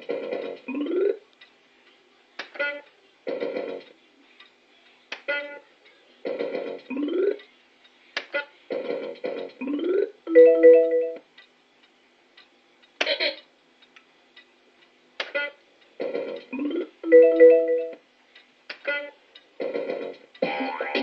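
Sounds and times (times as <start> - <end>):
fruit machine electronic effects: 0.7 - 1.2, 9.6 - 11.0, 16.5 - 18.0, 20.4 - 21.0.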